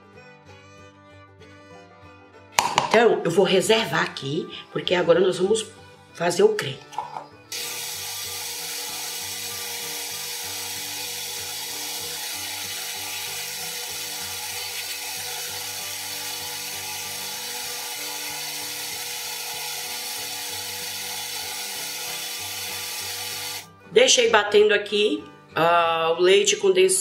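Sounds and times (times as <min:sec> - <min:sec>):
blender motor running: 0:07.5 - 0:23.7.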